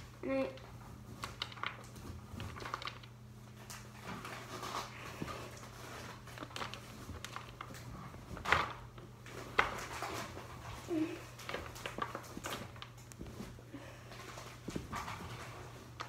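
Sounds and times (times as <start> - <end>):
plastic packaging crinkling: 1.0 - 13.6.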